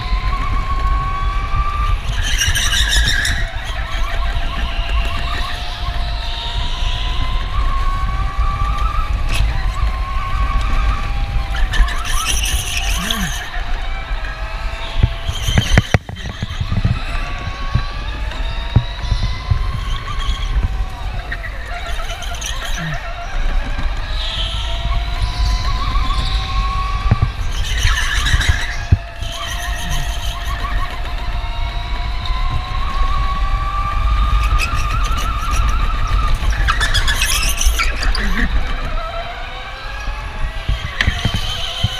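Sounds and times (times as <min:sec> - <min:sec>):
electric go-kart motor whine: 0:00.0 - 0:41.9
tyres squealing: 0:11.8 - 0:13.7, 0:19.8 - 0:23.3, 0:27.6 - 0:31.0.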